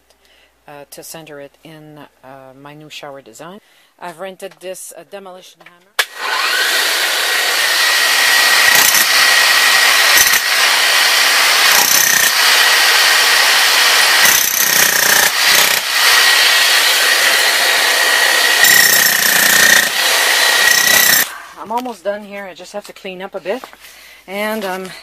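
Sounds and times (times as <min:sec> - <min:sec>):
demolition hammer chiselling concrete: 0:06.0 - 0:21.6.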